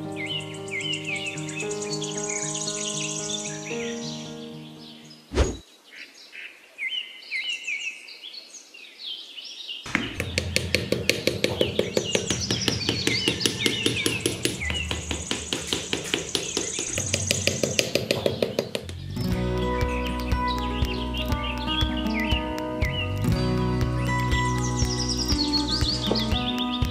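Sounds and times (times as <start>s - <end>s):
birds chirping: 0.0s - 26.9s
brief sharp sound: 5.3s - 5.6s
fast even ticking: 9.9s - 19.0s.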